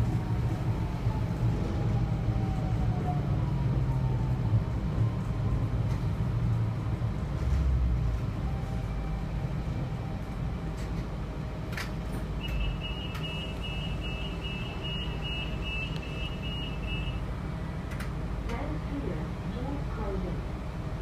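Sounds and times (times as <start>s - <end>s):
diesel railcar engine droning: 0.0s - 21.0s
high electronic beeping: 12.4s - 17.2s.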